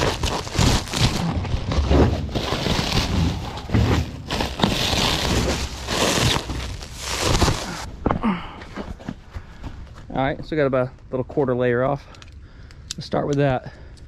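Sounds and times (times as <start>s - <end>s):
plastic wrap crinkling: 0.0s - 7.9s.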